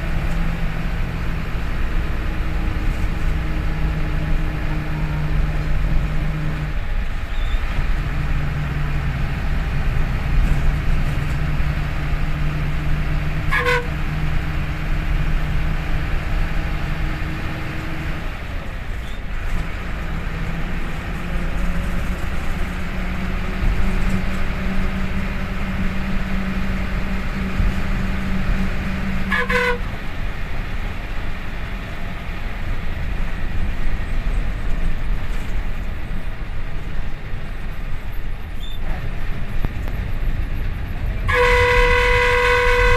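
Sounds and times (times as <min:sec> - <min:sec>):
diesel bus engine running: 0:00.0 - 0:42.9
bus horn toots: 0:13.1 - 0:14.9, 0:23.5 - 0:30.2, 0:41.1 - 0:42.9.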